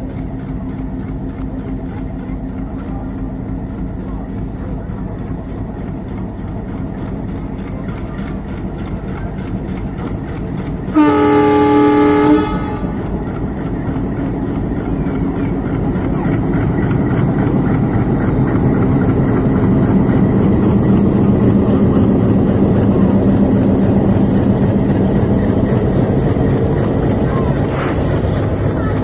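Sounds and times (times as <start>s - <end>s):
diesel locomotive engine rumble: 0.0s - 29.0s
locomotive horn: 10.9s - 13.2s.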